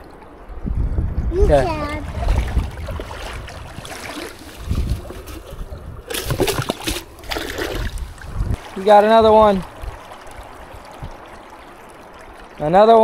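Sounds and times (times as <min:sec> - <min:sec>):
water sloshing around legs: 0:01.8 - 0:12.8
fish splashing into water: 0:02.0 - 0:08.8.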